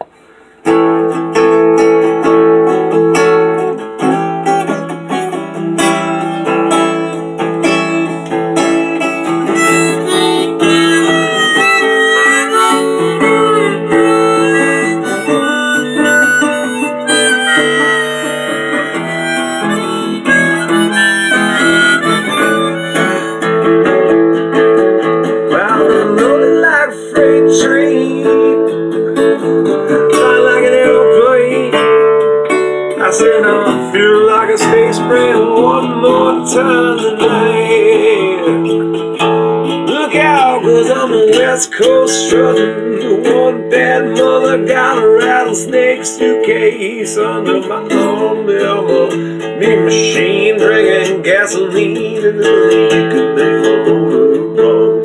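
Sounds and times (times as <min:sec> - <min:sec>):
guitar: 0:00.0 - 0:55.0
harmonica playing bent notes: 0:06.0 - 0:24.2.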